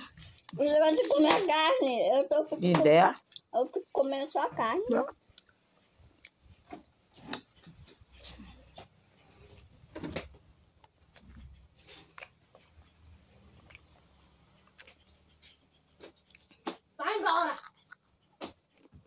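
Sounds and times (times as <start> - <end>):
person chewing food: 0.0 - 1.1, 5.2 - 9.9, 10.6 - 19.0.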